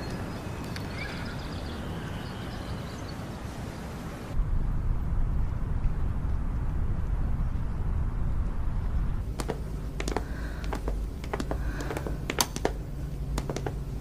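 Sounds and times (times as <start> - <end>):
low steady hum: 4.4 - 14.0
low steady rumble: 4.4 - 14.0
footsteps on hard floor: 9.2 - 14.0.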